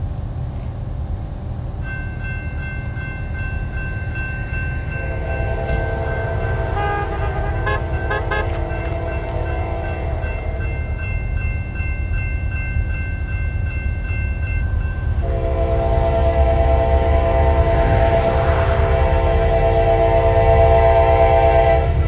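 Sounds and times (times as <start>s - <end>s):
low train rumble: 0.0s - 22.0s
crossing warning bell ringing: 1.8s - 22.0s
locomotive horn blast: 4.9s - 10.6s, 15.2s - 22.0s.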